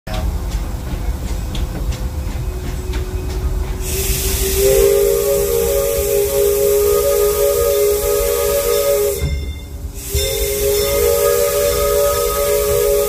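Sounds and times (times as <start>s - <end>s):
train rumbling: 0.0s - 13.0s
steam hiss: 3.7s - 13.0s
steam whistle chord: 3.8s - 13.0s.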